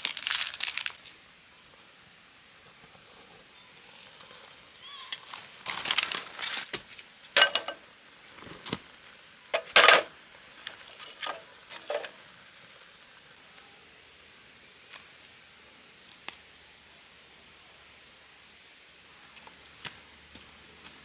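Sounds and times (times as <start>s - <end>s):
firewood clattering on metal: 7.4s - 7.8s, 9.5s - 10.1s, 11.0s - 12.2s.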